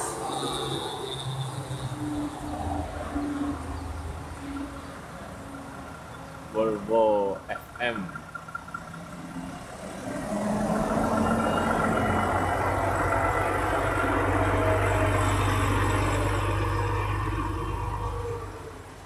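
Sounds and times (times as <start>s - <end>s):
truck diesel engine running: 5.4s - 18.9s.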